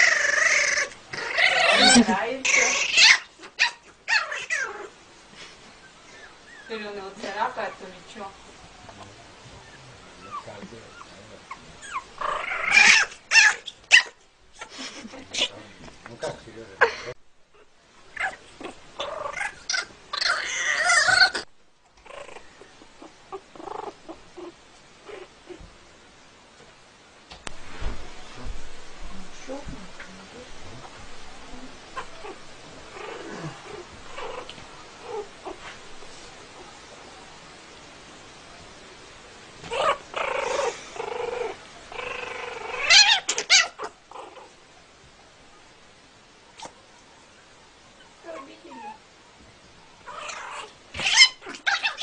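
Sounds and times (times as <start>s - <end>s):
young pet crying: 0.0s - 5.0s, 9.6s - 14.7s, 17.6s - 25.6s, 31.8s - 35.6s, 39.6s - 44.5s, 50.0s - 52.0s
kitten yowling: 42.6s - 43.9s, 50.1s - 52.0s.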